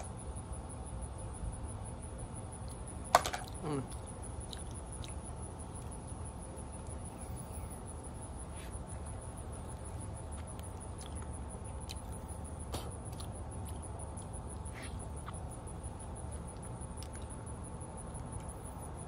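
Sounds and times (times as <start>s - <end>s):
soft mouth clicks eating: 3.5s - 5.3s, 10.4s - 15.4s.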